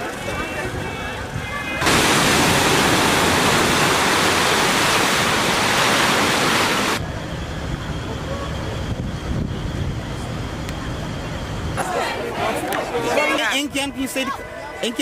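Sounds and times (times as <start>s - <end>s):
surf washing over rocks: 1.8s - 7.0s.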